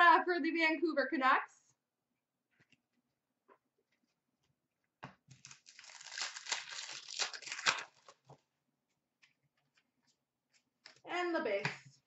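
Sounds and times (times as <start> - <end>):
wrapper ripping: 5.3 - 8.3
wrapper crinkling: 5.3 - 8.4.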